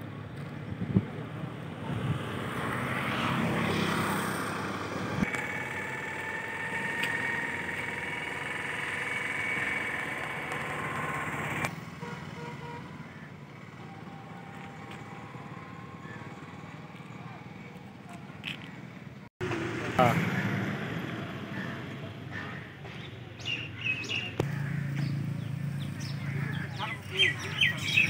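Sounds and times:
vehicle engine running: 0:02.4 - 0:23.0, 0:24.3 - 0:28.0
whine rising in pitch: 0:04.5 - 0:11.7.

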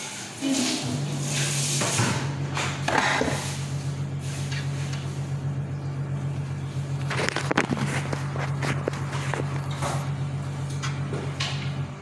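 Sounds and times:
low mechanical motor hum: 0:00.0 - 0:12.0
clatter: 0:06.9 - 0:11.8.

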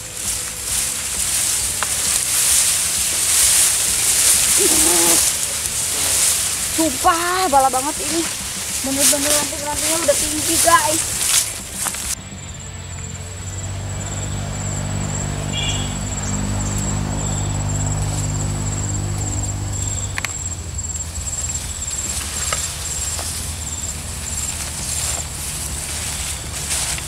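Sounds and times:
pulsing insect trill: 0:00.0 - 0:27.0.

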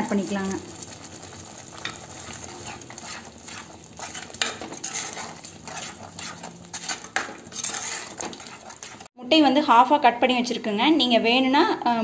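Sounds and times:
spoon scraping clay pot: 0:00.7 - 0:09.1.

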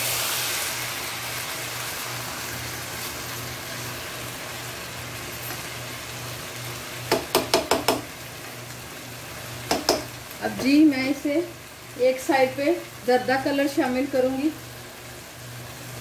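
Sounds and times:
food sizzling in a wok: 0:00.0 - 0:16.0
spatula knocking on pan: 0:07.1 - 0:08.1, 0:09.6 - 0:10.1.

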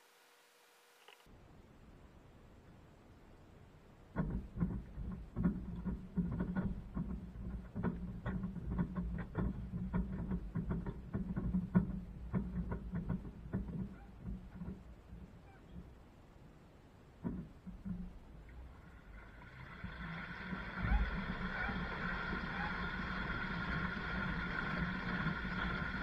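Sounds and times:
tumbling load knocking: 0:04.1 - 0:16.0, 0:17.2 - 0:26.0
washing machine motor hum: 0:18.7 - 0:26.0.

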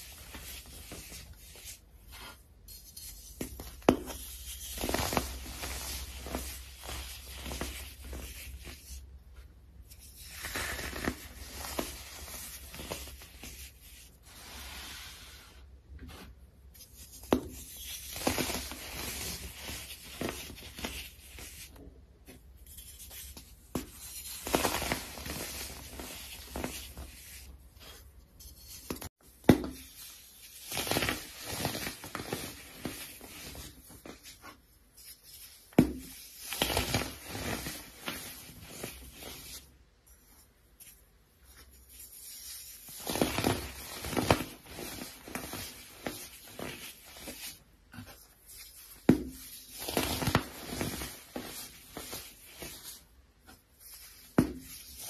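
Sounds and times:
hands crushing powdery blocks: 0:00.0 - 0:09.0, 0:09.9 - 0:15.6, 0:16.2 - 0:39.6.

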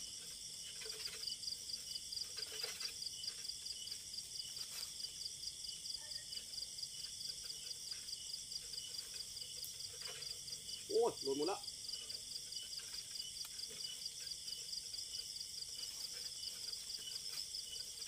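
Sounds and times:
faint rustles: 0:00.0 - 0:05.3
insects trilling: 0:00.0 - 0:18.0.

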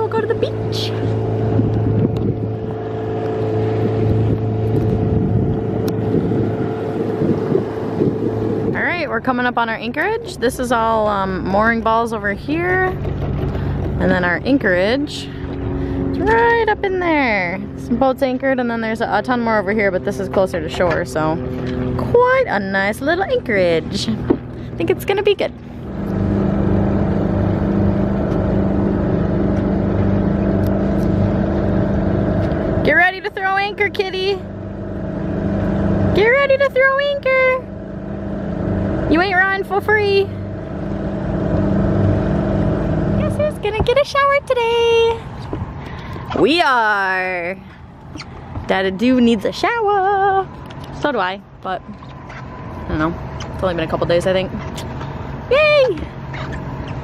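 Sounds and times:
wind noise: 0:00.0 - 0:18.5
boat engine droning: 0:00.0 - 0:57.0
water noise: 0:00.0 - 0:57.0.

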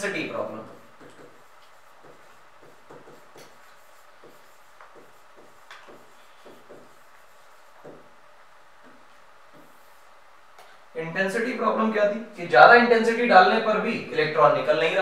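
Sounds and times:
stylus tapping and scraping screen: 0:00.6 - 0:08.2, 0:08.8 - 0:10.8.

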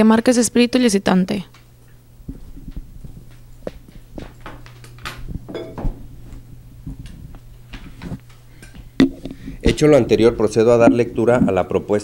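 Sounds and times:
steady low hum: 0:00.0 - 0:12.0
microphone handling noise: 0:02.1 - 0:09.8.

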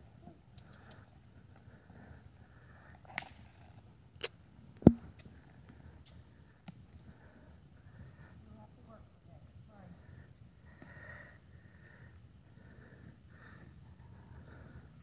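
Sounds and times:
deep thump: 0:04.9 - 0:05.1.

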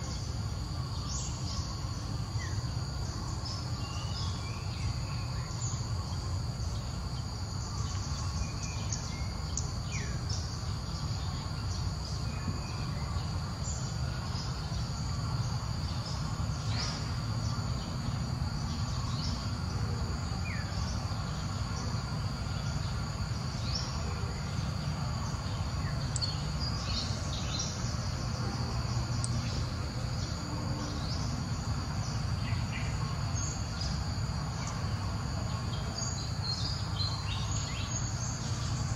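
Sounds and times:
insect chorus buzzing: 0:00.0 - 0:38.9
short insect chirps: 0:20.3 - 0:38.9.

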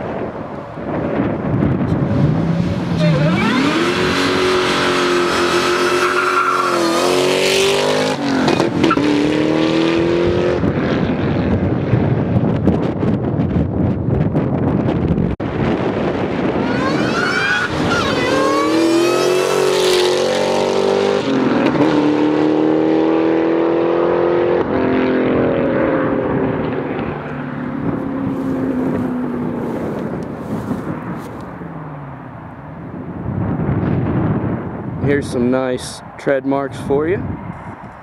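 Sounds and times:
car engine accelerating hard: 0:01.8 - 0:12.0, 0:15.7 - 0:30.9.

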